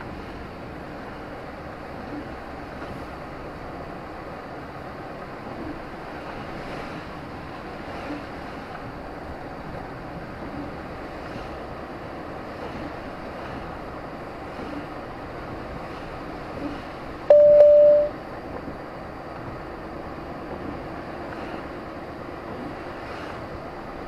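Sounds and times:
electronic beep: 17.3s - 18.2s.

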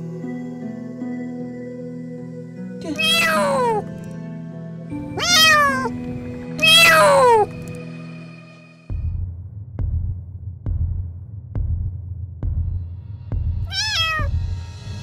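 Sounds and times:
kitten meowing loudly: 2.9s - 3.9s, 5.1s - 5.9s, 6.6s - 7.6s, 13.7s - 14.3s.

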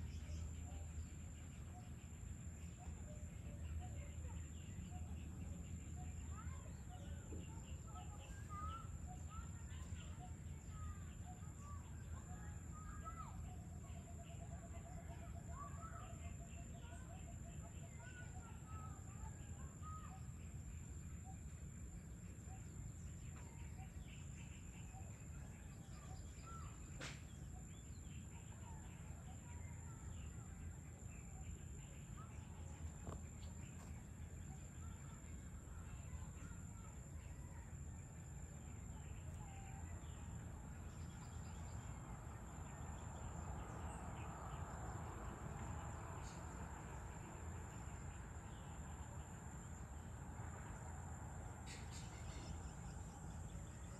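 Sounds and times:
bird chirps and calls: 51.6s - 53.9s.

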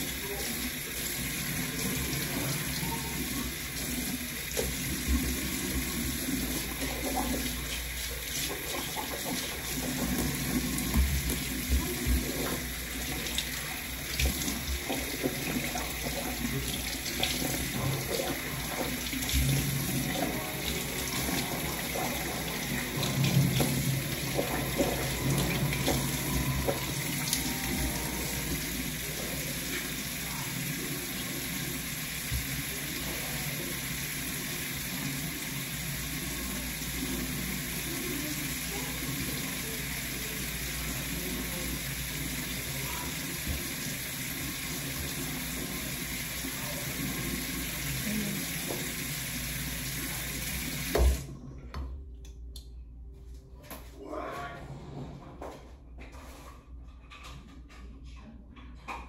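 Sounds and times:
tap water splashing into basin: 50.7s - 51.3s.

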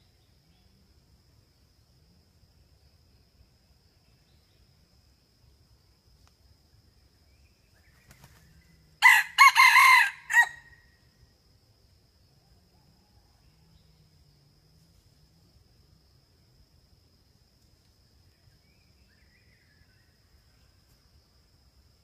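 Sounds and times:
rooster crowing: 9.0s - 10.8s.

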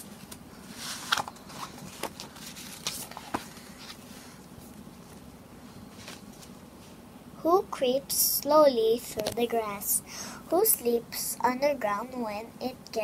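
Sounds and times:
faint steady hum: 0.0s - 13.0s
cardboard pages turning: 0.1s - 4.1s.

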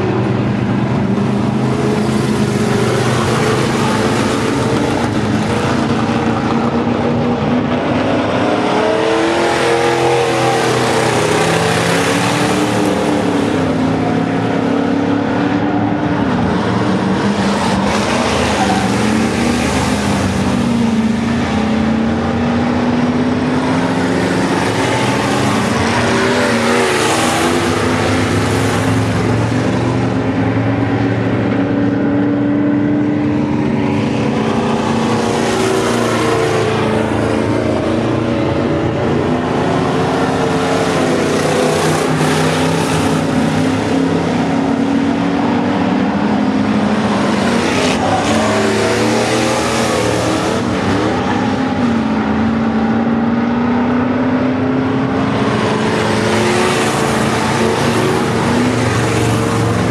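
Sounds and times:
race car engines at high revs: 0.0s - 59.9s.

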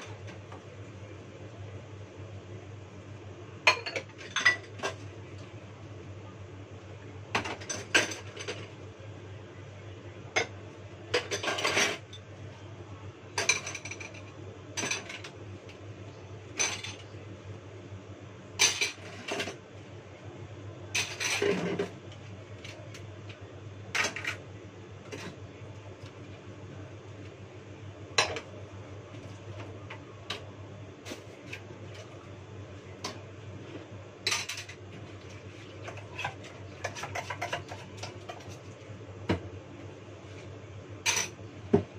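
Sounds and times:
dishes clinking in a sink: 3.6s - 5.0s, 10.3s - 12.1s, 13.4s - 14.2s, 41.0s - 41.9s.

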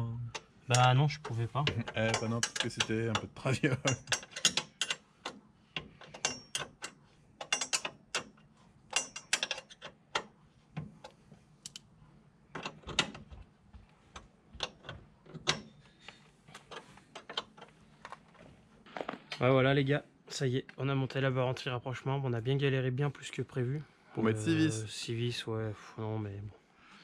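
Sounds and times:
hand tools clinking on metal: 1.8s - 5.0s.

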